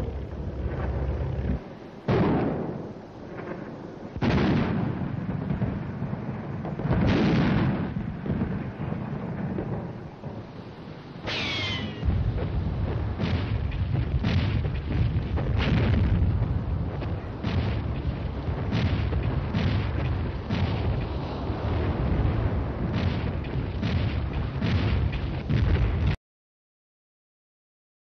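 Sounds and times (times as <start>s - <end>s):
explosions and gunfire bangs: 0.0s - 10.4s, 11.2s - 26.2s
low battle rumble: 0.0s - 26.2s.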